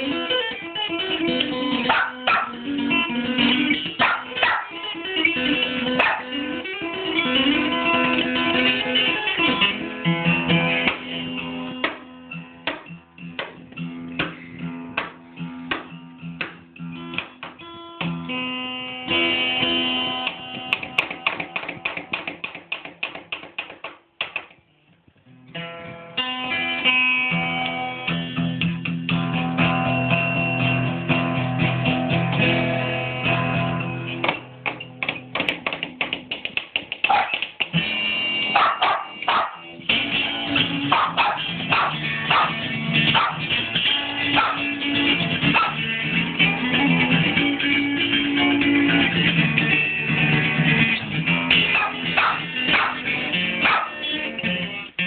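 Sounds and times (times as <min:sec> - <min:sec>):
acoustic guitar playing: 0:00.0 - 0:22.6, 0:25.0 - 0:36.4, 0:37.2 - 0:55.0
small dog barking: 0:01.8 - 0:02.6, 0:04.0 - 0:04.8, 0:06.0 - 0:06.3, 0:37.0 - 0:37.4, 0:38.5 - 0:39.7, 0:40.9 - 0:43.5, 0:44.3 - 0:44.8, 0:45.5 - 0:45.8, 0:51.7 - 0:54.0.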